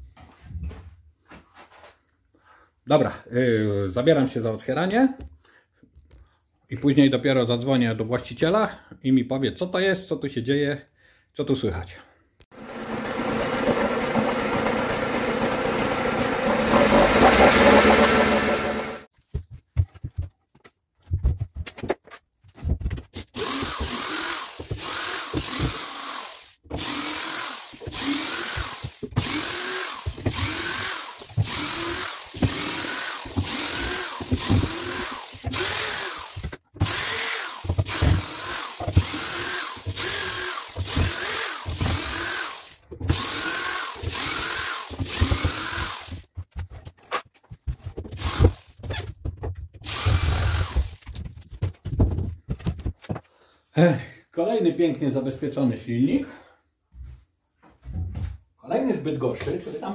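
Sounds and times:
drill-driver motor bursts: 23.4 - 46.3, 48.2 - 48.8, 49.8 - 51.0.

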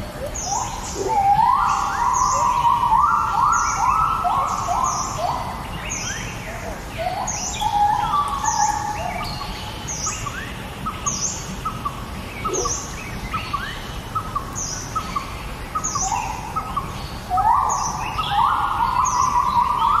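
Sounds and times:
birds chirping: 0.0 - 20.0
harsh bird calling: 7.0 - 20.0.

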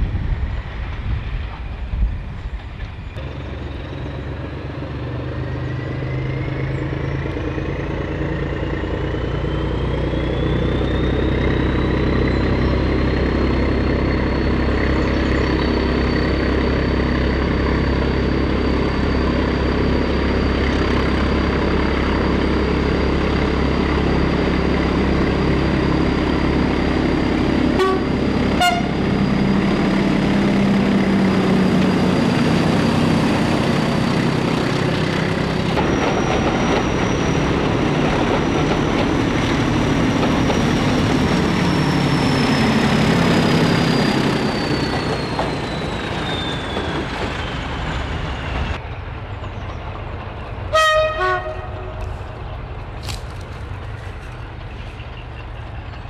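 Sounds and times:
diesel locomotive engines running: 0.0 - 56.0
train horn toot: 27.7 - 29.1, 50.7 - 52.2
two-tone train horn blast: 27.7 - 29.2, 50.7 - 52.2.

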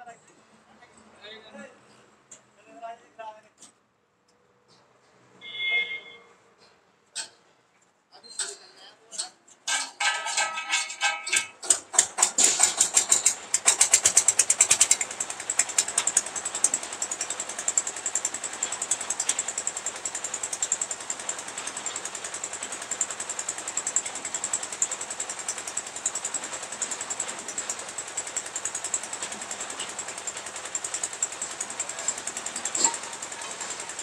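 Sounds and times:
small engine starting and running: 9.9 - 34.0.

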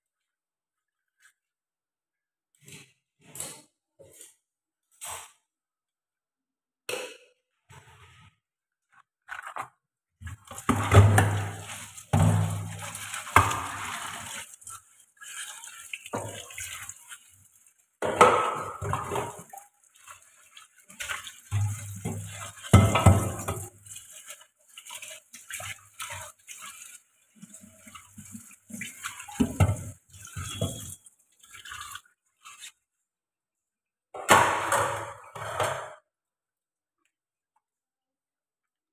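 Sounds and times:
dishes being scrubbed: 10.2 - 32.8
water splashing: 10.4 - 32.8
pots and pans bumping: 10.7 - 14.2, 18.0 - 19.5, 21.5 - 23.8, 29.2 - 31.0.

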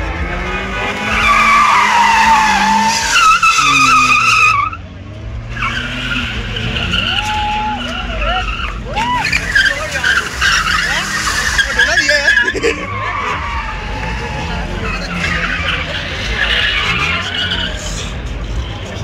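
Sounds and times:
car engines running: 0.0 - 19.0
car tyres squealing: 0.0 - 19.0.

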